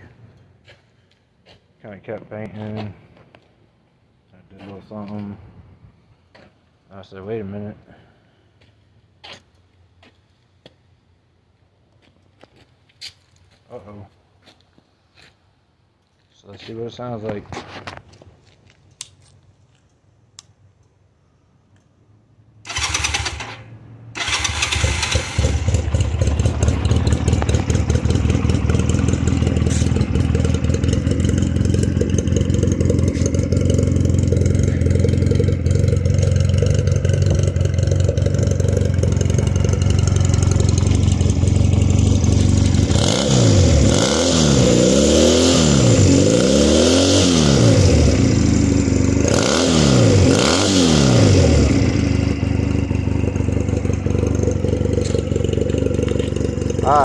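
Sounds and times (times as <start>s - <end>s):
engine revving: 22.6s - 57.0s
starter motor cranking: 22.7s - 23.6s, 24.2s - 25.7s
motorcycle engine idling: 24.2s - 43.9s, 51.4s - 57.0s.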